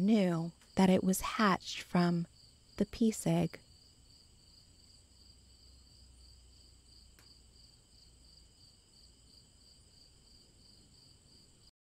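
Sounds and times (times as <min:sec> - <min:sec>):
faint crickets chirping: 0:00.0 - 0:11.7
faint click: 0:07.2 - 0:07.4.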